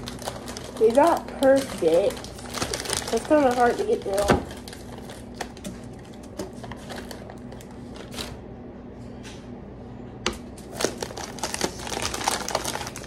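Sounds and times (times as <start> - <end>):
plastic wrapper crinkling: 0.0 - 8.4, 10.6 - 13.0
steady low hum: 0.0 - 13.0.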